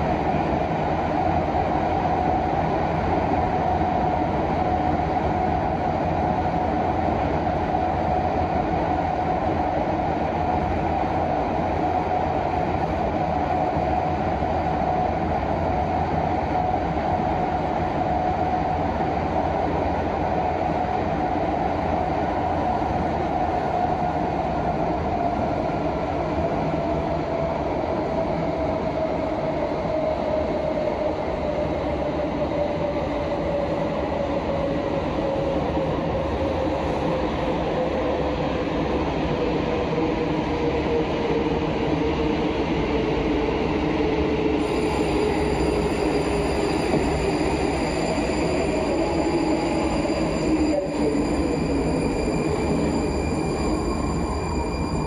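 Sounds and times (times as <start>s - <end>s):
train wheels rumbling on rail: 0.0s - 55.0s
train motor whine: 44.6s - 55.0s.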